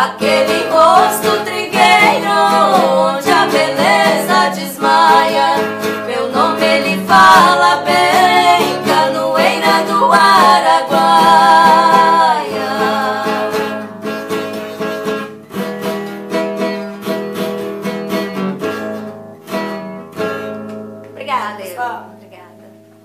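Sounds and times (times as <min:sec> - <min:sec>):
women singing together: 0:00.0 - 0:14.0
strummed acoustic guitar: 0:00.0 - 0:23.0.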